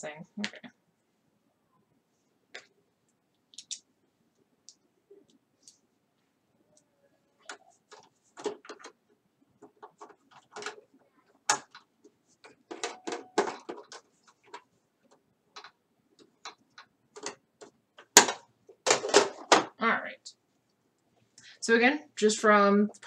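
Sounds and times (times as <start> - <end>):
hands handling small parts: 2.5 - 6.2.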